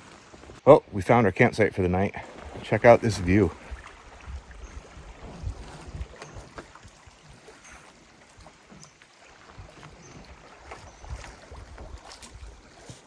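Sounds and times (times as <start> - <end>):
faint water splashes: 0.0 - 13.0
waves lapping against rocks: 2.2 - 13.0
wind gusting over microphone: 2.3 - 6.6.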